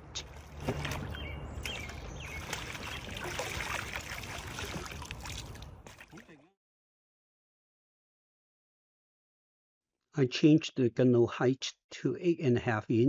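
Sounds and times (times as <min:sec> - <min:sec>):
kayak paddle strokes splashing: 0:00.0 - 0:06.4
water lapping around hull: 0:00.0 - 0:06.4.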